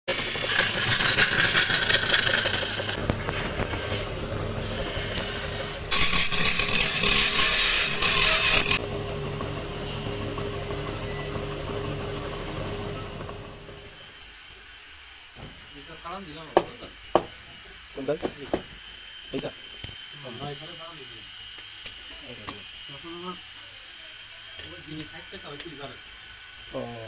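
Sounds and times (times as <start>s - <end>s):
chisel scraping wood on lathe: 0.1s - 8.8s
lathe motor humming: 0.1s - 14.4s.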